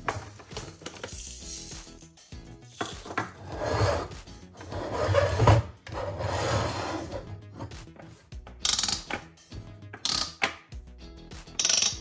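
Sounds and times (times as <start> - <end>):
plastic toy scraping on tabletop: 3.4 - 7.8.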